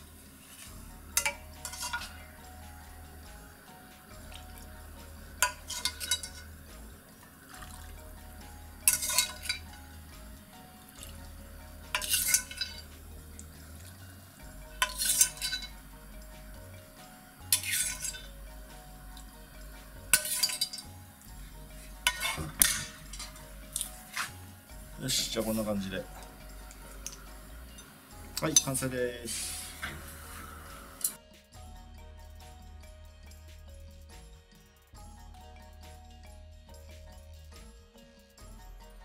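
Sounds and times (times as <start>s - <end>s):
metal ladle clinking: 0.5s - 2.4s, 5.4s - 6.6s, 8.8s - 9.8s, 10.8s - 14.0s, 14.6s - 16.9s, 17.5s - 18.4s, 20.1s - 21.0s, 21.6s - 28.8s.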